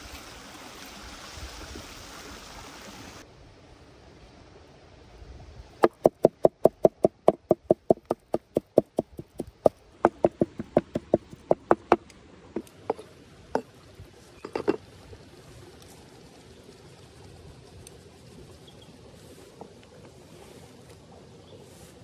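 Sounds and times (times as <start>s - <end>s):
cleaver chopping on wooden board: 5.8s - 12.0s.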